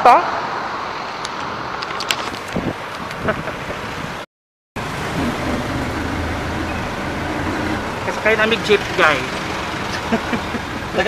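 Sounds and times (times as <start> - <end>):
road noise: 0.0 - 11.0
street traffic noise: 0.0 - 11.0
vehicle engine running: 4.8 - 11.0.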